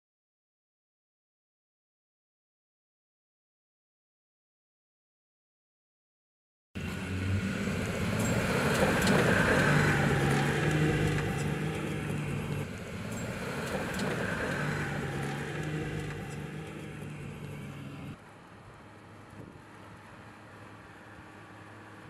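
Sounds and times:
pickup engine driving on sand: 6.8s - 22.0s.

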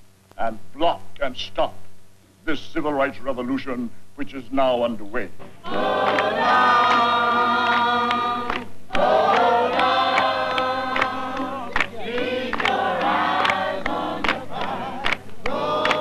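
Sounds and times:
crowd singing in chorus: 5.6s - 16.0s.

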